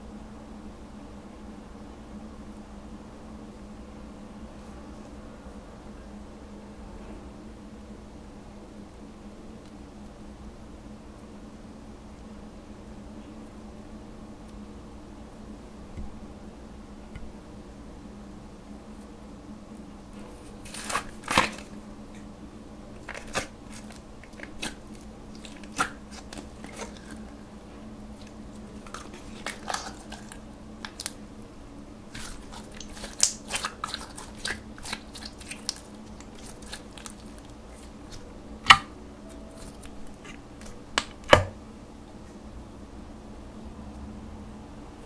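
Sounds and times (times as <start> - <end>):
faint steady hum: 0.0 - 45.0.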